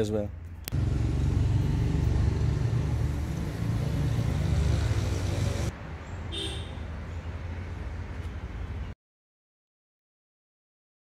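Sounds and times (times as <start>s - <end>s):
vehicle engine running: 0.7s - 5.7s.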